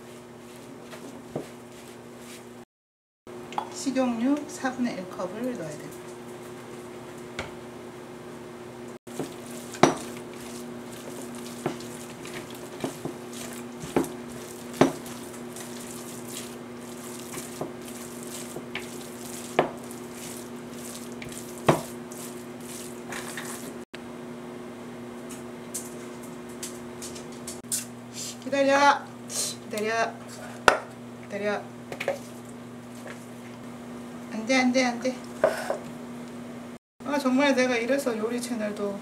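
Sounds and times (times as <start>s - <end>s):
spatula knocking on bowl: 9.1s - 22.3s
batter squishing: 9.1s - 23.8s.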